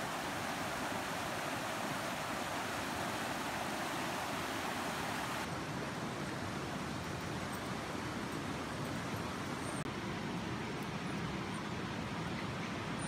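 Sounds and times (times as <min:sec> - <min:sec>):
creek rushing over rocks: 0:00.0 - 0:06.6.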